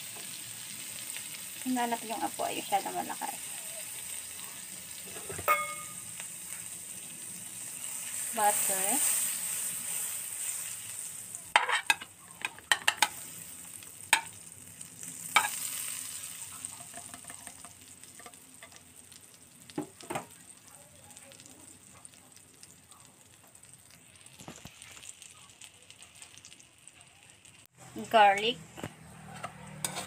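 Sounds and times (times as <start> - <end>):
butter sizzling in a pan: 0.0 - 30.0
metal spatula scraping pan: 11.5 - 13.2, 29.2 - 30.0.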